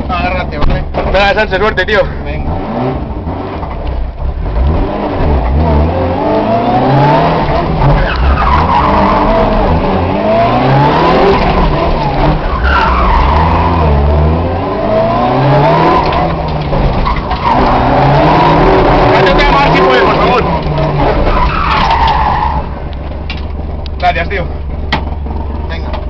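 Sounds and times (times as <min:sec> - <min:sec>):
car engine revving: 0:00.0 - 0:26.0
tyres squealing on tarmac: 0:07.8 - 0:09.8, 0:12.0 - 0:14.3, 0:15.6 - 0:22.9.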